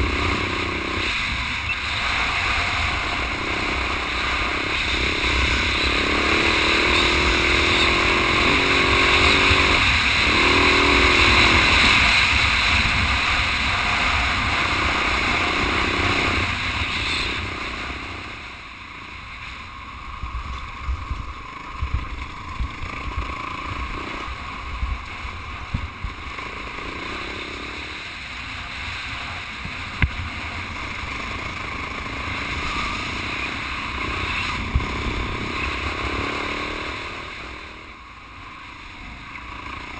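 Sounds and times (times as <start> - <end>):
motorcycle engine running: 0.0 - 39.9
wind noise on microphone: 20.2 - 23.4, 24.6 - 26.3, 34.0 - 36.2.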